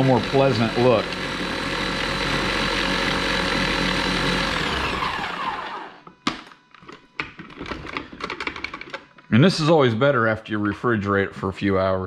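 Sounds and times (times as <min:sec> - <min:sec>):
blender motor running: 0:00.0 - 0:06.2.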